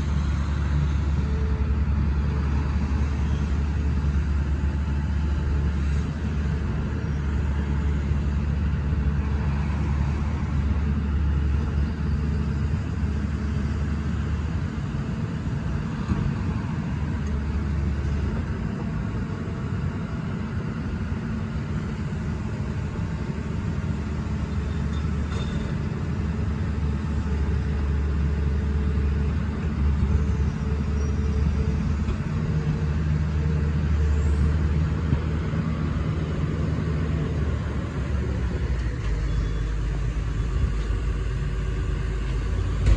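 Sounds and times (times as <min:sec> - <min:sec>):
excavator diesel engine running: 0:00.0 - 0:42.9.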